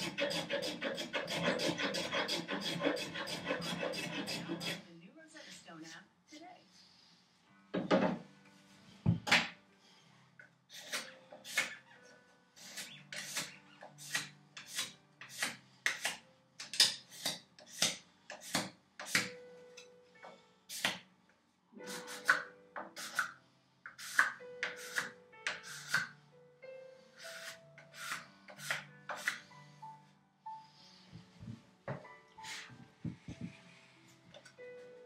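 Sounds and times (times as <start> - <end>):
hand scraper scraping wood: 0.0 - 4.8, 12.6 - 16.1, 27.2 - 29.5.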